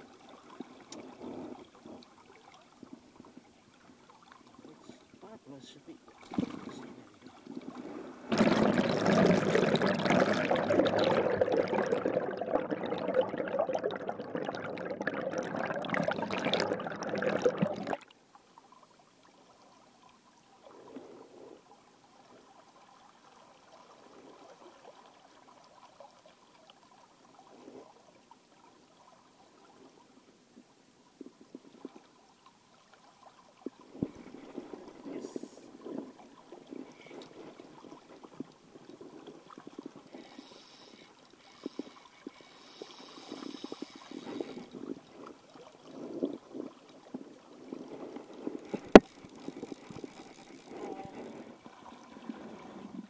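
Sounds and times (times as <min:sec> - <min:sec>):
faint river flow: 0:00.0 - 0:53.0
water gurgling and pouring: 0:06.1 - 0:18.1, 0:33.8 - 0:53.0.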